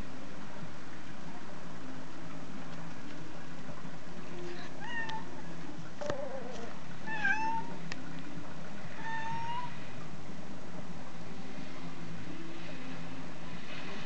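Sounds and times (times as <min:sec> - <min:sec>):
cat meowing: 0:07.1 - 0:07.8, 0:09.0 - 0:09.8.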